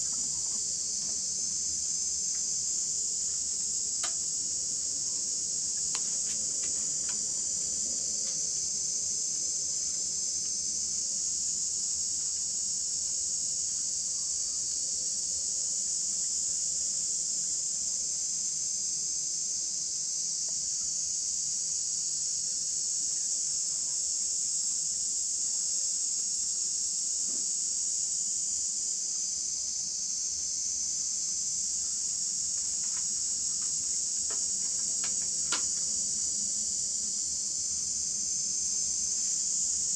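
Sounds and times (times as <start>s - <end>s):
high-pitched insect chorus: 0.0s - 39.9s.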